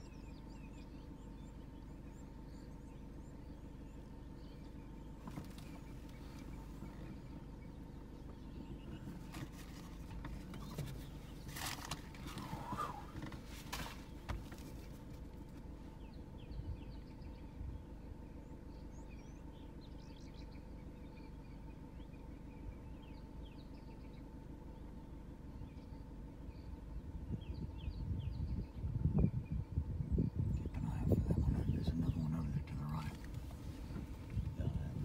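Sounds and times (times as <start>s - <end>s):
small birds chirping: 0.0s - 35.0s
vehicle idling hum: 0.0s - 35.0s.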